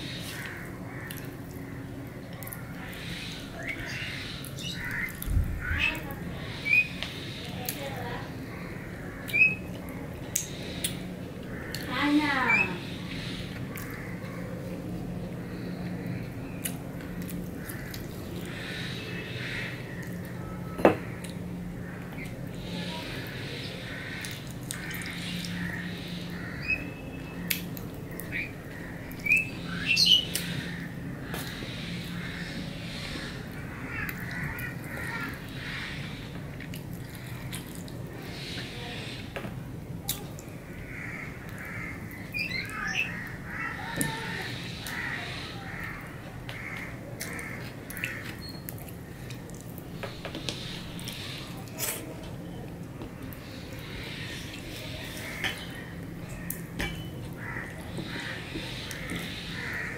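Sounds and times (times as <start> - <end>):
steady low hum: 0.0 - 59.9
crows cawing: 0.1 - 6.2, 7.1 - 10.0, 11.4 - 14.6, 17.6 - 27.1, 28.1 - 36.4, 40.6 - 48.4, 53.7 - 59.9
man chewing food: 36.3 - 38.1.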